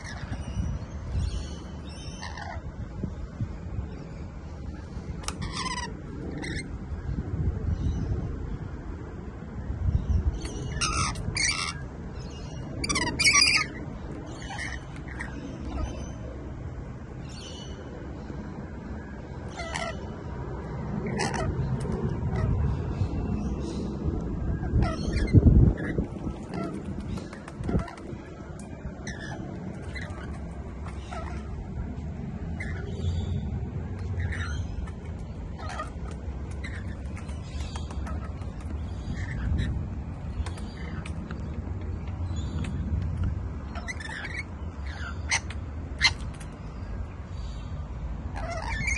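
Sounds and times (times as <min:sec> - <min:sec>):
parrots screeching: 0:00.0 - 0:00.6, 0:01.2 - 0:02.7, 0:05.2 - 0:06.7, 0:10.4 - 0:16.2, 0:19.4 - 0:20.1, 0:21.0 - 0:22.7, 0:24.5 - 0:31.8, 0:32.5 - 0:41.5, 0:43.2 - 0:46.9, 0:48.3 - 0:48.9
steady low rumble: 0:00.0 - 0:48.9
wings fluttering: 0:24.8 - 0:32.9, 0:34.0 - 0:41.8.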